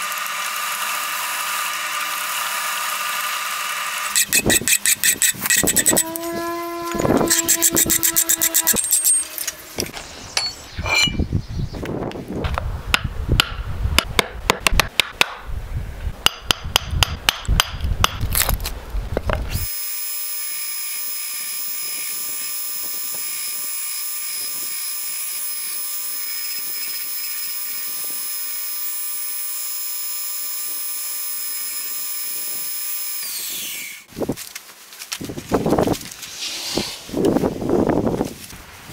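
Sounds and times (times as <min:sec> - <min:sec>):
belt grinder whining: 0:00.0 - 0:10.6, 0:19.5 - 0:34.1
wooden handle on sanding belt: 0:04.1 - 0:09.5.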